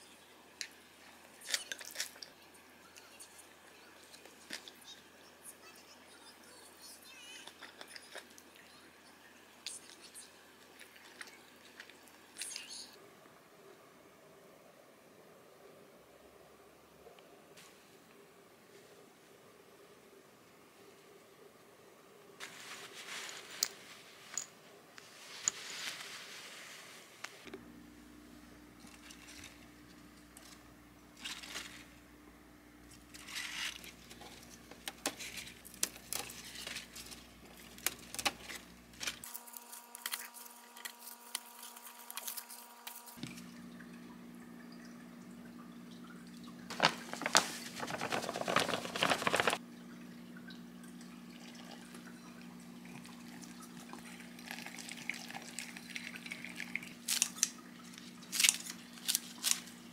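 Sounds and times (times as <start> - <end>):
lettuce leaves rustling: 22.4 - 24.3, 31.2 - 32.0, 33.0 - 43.4, 46.7 - 49.6, 55.8 - 59.9
water running: 40.6 - 59.9.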